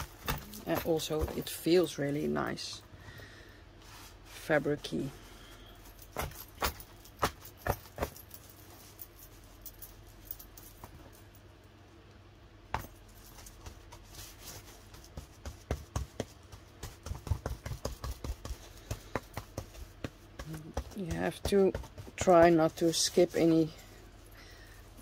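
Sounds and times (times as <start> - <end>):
brush tapping on cardboard: 13.6 - 22.8.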